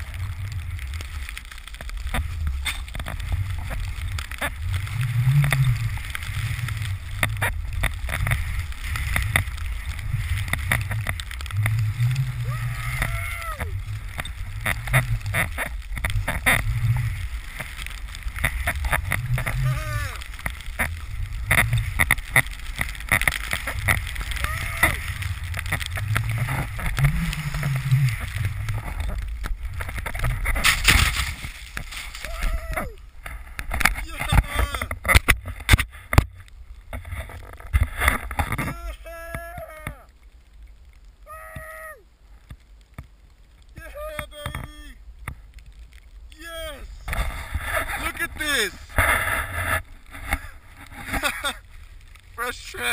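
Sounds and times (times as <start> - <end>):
wind rumbling on microphone: 0.0 - 52.9
spraying snow hiss: 11.5 - 15.3, 16.8 - 21.5, 22.2 - 25.4, 51.2 - 52.9
snowboard hissing in snow: 12.2 - 13.8
sharp knocks and scrapes: 25.5 - 32.3.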